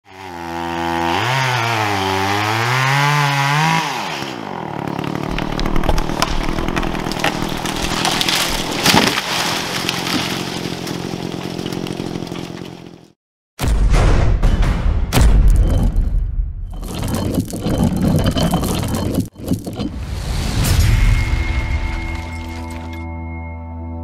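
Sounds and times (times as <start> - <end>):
chainsaw revving: 0.1 - 13.1
wood cracking and snapping: 4.9 - 13.0.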